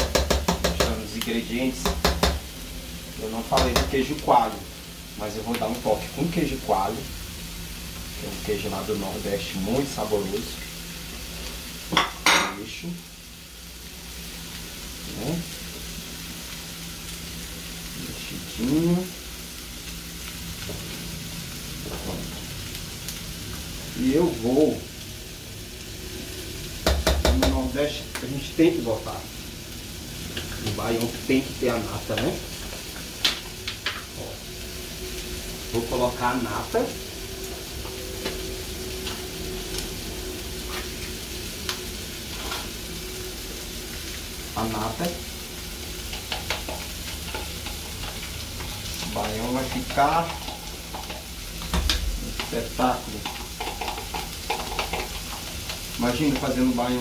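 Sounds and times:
food sizzling: 0.0s - 57.0s
spoon stirring in a pot: 53.2s - 56.5s.

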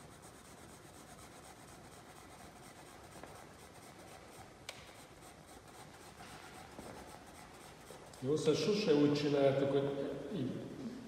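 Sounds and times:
pencil scratching on paper: 0.0s - 8.7s.

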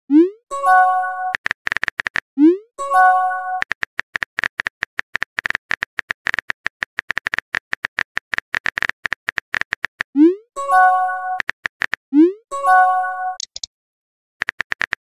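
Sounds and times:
phone keyboard typing clicks: 1.3s - 2.2s, 3.6s - 10.1s, 11.3s - 12.0s, 13.4s - 13.7s, 14.4s - 15.0s.

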